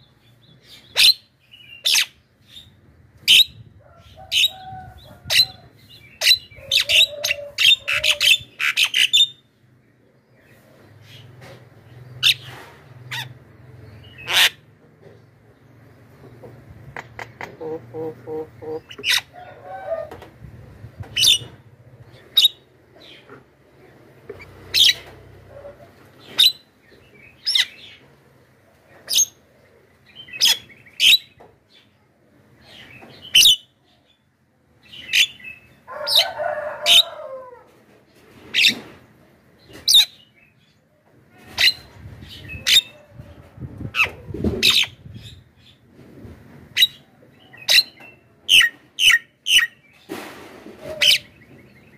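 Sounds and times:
myna calling: 17.0 - 20.2.

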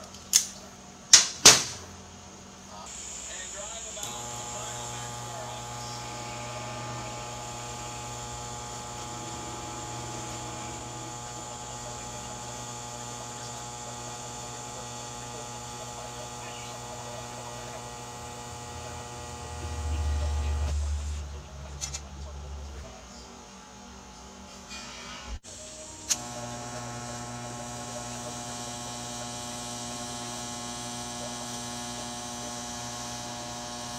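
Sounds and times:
welding arc humming: 2.8 - 21.3, 25.5 - 33.9.

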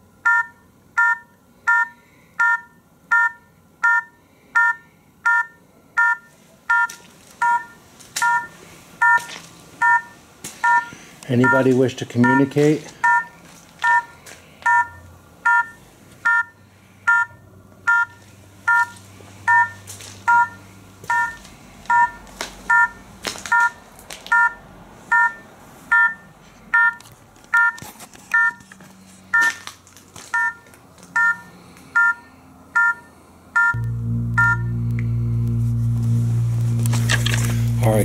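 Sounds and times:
low steady drone: 33.8 - 38.0
three-note chiming beeps: 33.8 - 38.0.

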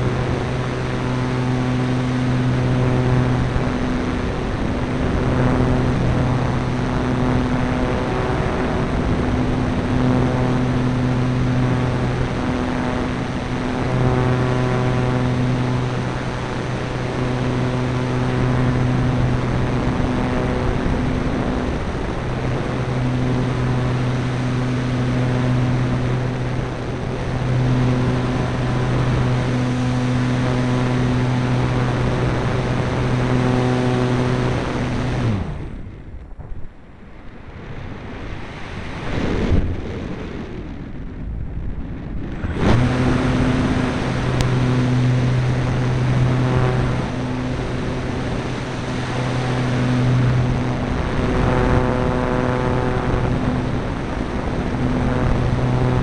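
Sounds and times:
electric motor and propeller hum: 0.0 - 41.3, 42.0 - 56.0
air rushing over microphone: 0.0 - 56.0.

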